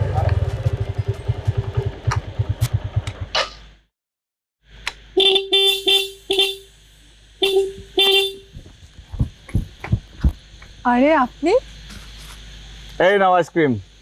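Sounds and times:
small motorbike engine running: 0:00.0 - 0:03.3
motorbike horn short beeps: 0:05.2 - 0:06.7, 0:07.4 - 0:08.5.

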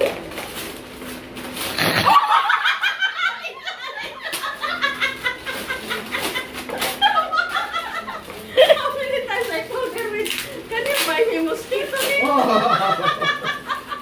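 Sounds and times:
wrapping paper tearing: 0:00.0 - 0:02.2, 0:04.2 - 0:12.5
woman laughing hard: 0:01.8 - 0:09.0, 0:12.2 - 0:14.0.

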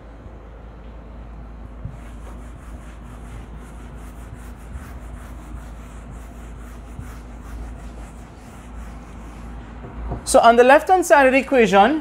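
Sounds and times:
eraser rubbing on whiteboard: 0:01.8 - 0:09.8.

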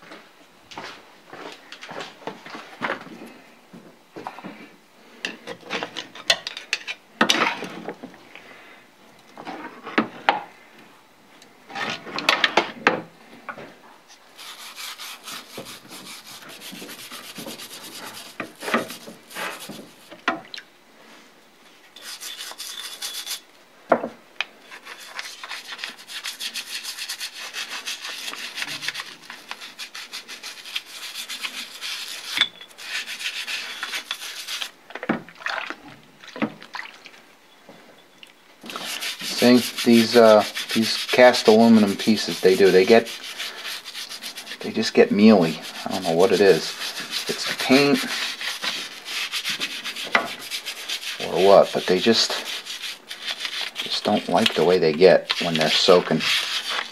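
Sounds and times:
brush scrubbing metal part: 0:14.4 - 0:20.2, 0:22.0 - 0:23.4, 0:24.7 - 0:34.7, 0:38.7 - 0:56.9.

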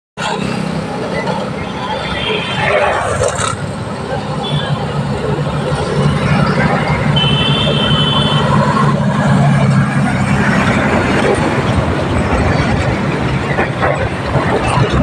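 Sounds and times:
cars passing with tyre noise: 0:00.2 - 0:15.0
truck engine rumbling past: 0:02.8 - 0:15.0.

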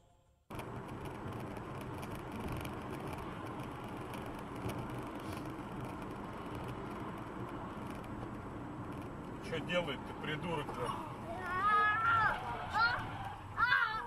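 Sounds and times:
car road noise inside cabin: 0:00.5 - 0:14.0.

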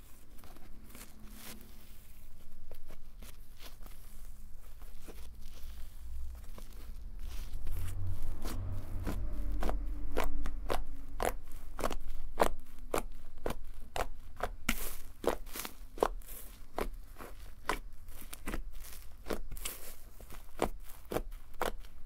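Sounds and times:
low handling rumble: 0:04.8 - 0:13.2.

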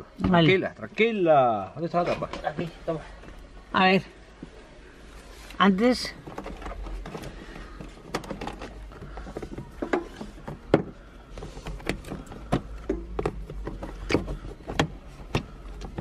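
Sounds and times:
plastic cover knocking and clicking: 0:06.2 - 0:16.0.

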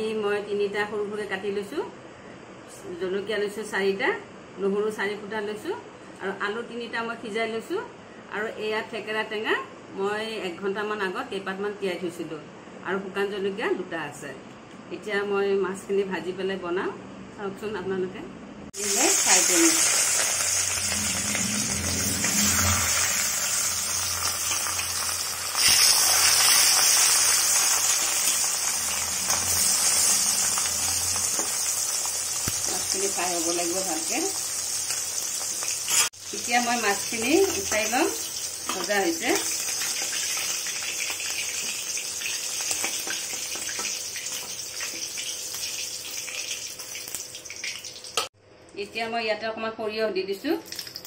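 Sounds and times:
fish sizzling in hot oil: 0:18.8 - 0:48.3.

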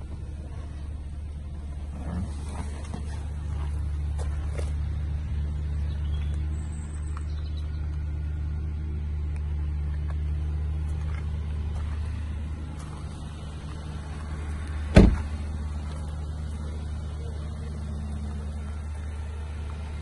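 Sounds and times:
car door slamming shut: 0:14.9 - 0:15.4.

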